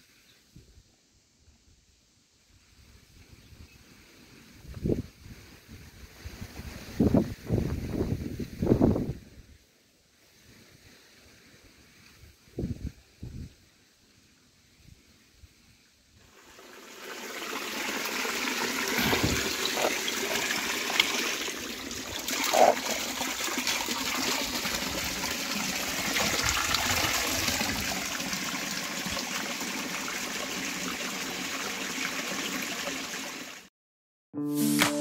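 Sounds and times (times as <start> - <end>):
water trickling and splashing: 16.2 - 33.7.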